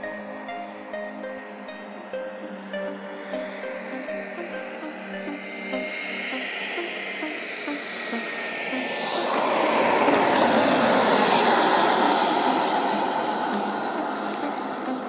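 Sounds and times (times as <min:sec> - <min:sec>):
model jet turbine rushing: 0:08.1 - 0:15.0.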